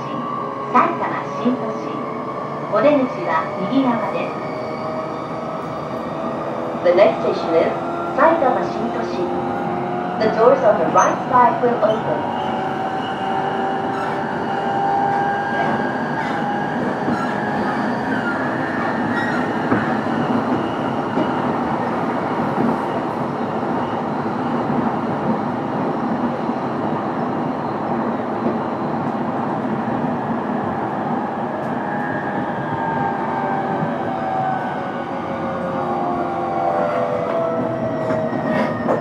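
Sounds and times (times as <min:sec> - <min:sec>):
train wheels rumbling on rails: 0:00.0 - 0:39.0.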